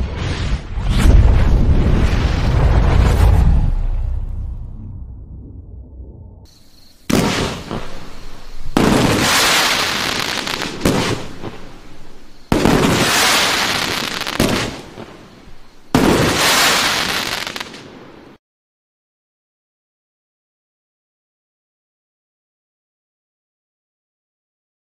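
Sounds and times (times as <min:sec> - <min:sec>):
fireworks firing in volleys: 0:07.0 - 0:18.2.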